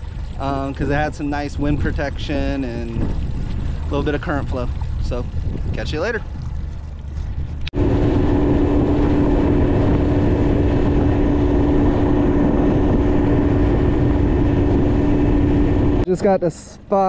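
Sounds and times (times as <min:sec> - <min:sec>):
rushing water noise: 0:00.0 - 0:16.4
boat motor droning: 0:00.0 - 0:17.0.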